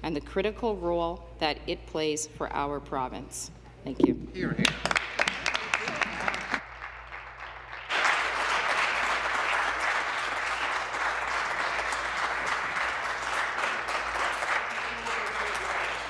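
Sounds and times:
audience applauding: 4.6s - 16.0s.

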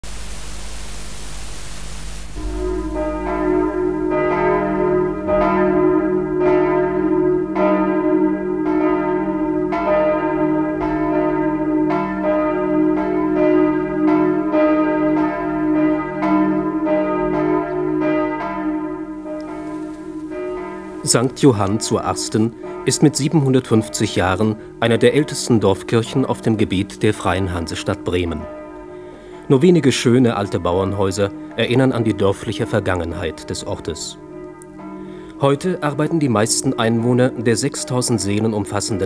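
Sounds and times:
steady hiss: 0.0s - 4.2s
sustained hum: 0.0s - 5.3s
church bells pealing: 2.4s - 39.0s.

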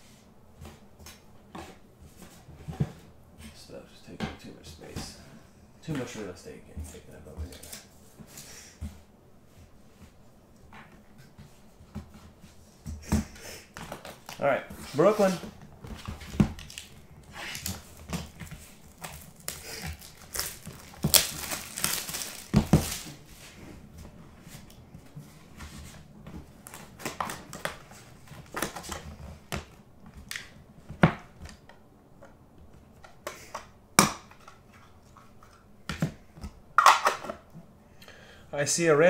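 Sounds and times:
plastic wrap crinkling and tearing: 16.6s - 23.2s
box cutter slitting plastic wrap: 19.0s - 23.1s.

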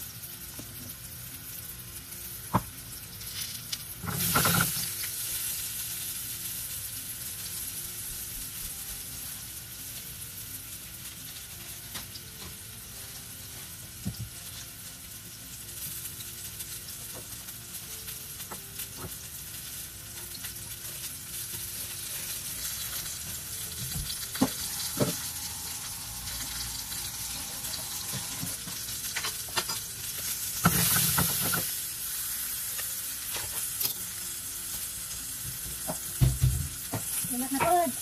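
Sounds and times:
potatoes being turned in pan: 0.0s - 38.0s
potatoes sizzling in a pan: 0.0s - 38.0s
knocks in a pan: 35.8s - 37.8s.

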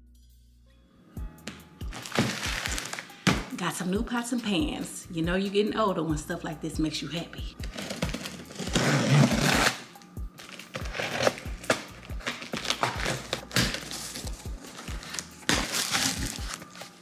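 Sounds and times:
music with steady beat: 0.0s - 5.4s, 6.1s - 17.0s
cardboard scraping and crinkling: 1.9s - 3.5s, 7.6s - 9.8s, 10.4s - 17.0s
box cutter slicing tape: 7.6s - 16.9s.

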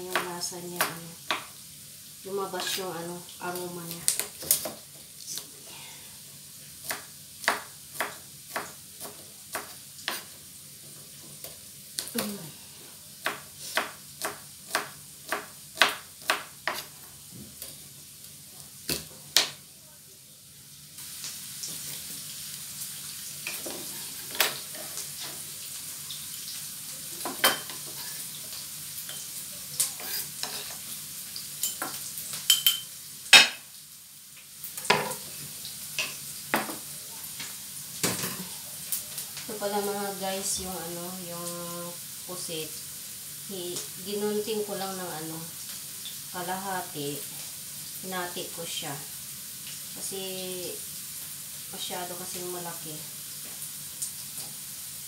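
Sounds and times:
onions sizzling in oil: 0.0s - 55.0s
knife chopping on cutting board: 13.2s - 16.9s.

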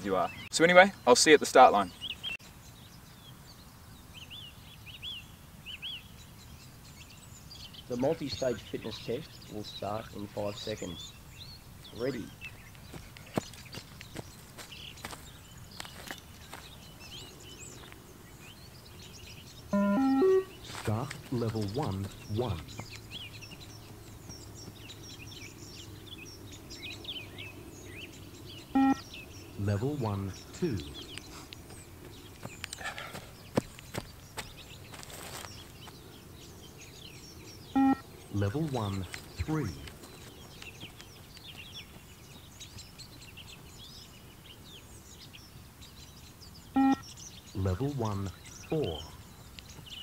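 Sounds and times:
low outdoor hum: 0.0s - 50.0s
small birds chirping: 0.0s - 50.0s
loud electronic beep: 19.8s - 20.6s, 28.8s - 29.0s, 37.8s - 38.0s, 46.8s - 47.0s.

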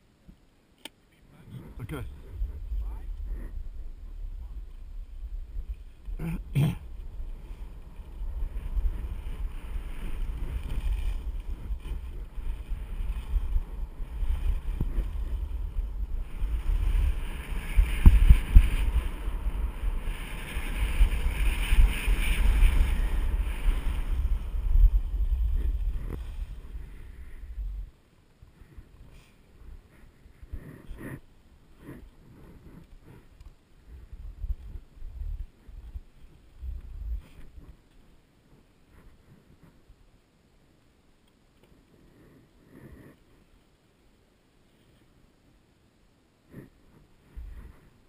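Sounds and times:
wind buffeting microphone: 1.5s - 27.9s, 31.8s - 37.8s
skis sliding over snow: 1.6s - 27.9s.

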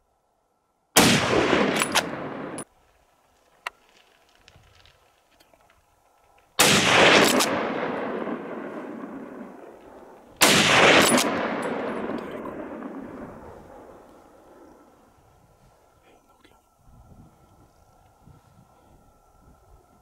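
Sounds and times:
rifle shots echoing: 1.0s - 2.7s, 6.6s - 15.1s.

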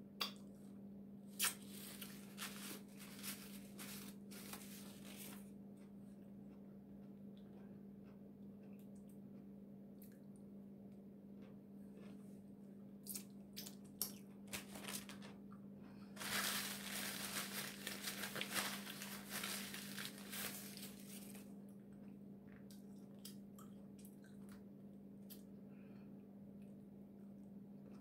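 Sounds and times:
steady low hum: 0.0s - 28.0s
paper towel rustling: 1.7s - 5.4s, 14.5s - 15.3s, 16.2s - 21.5s.

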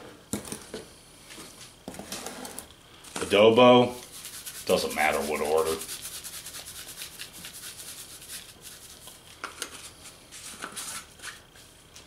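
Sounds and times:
spice shaker rattling: 4.1s - 9.2s.

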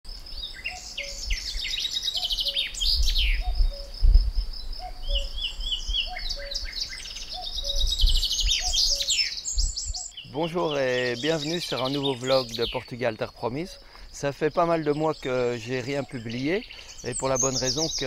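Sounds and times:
birds singing and chirping: 0.1s - 18.0s.

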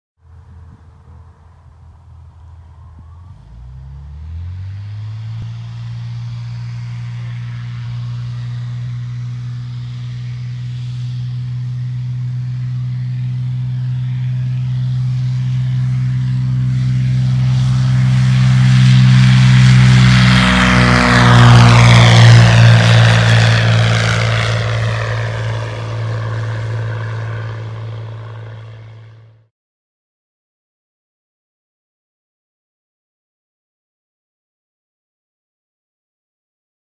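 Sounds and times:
propeller plane engine droning: 0.2s - 29.5s.

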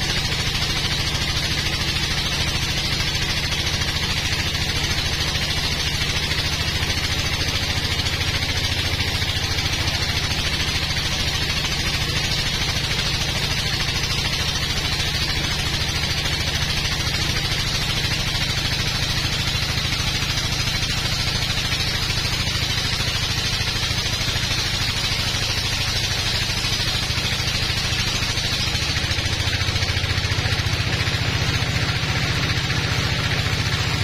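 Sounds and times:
bandsaw machine drone: 0.0s - 34.0s.

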